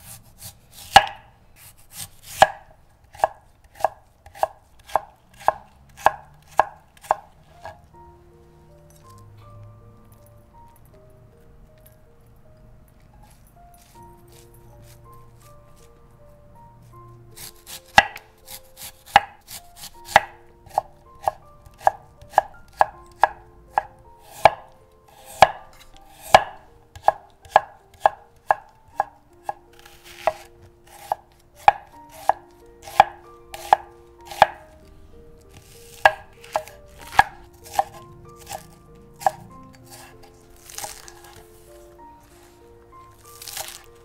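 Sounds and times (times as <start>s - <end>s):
knife chopping on wooden board: 0.0s - 7.8s, 17.4s - 34.6s, 35.5s - 41.5s, 43.4s - 43.9s.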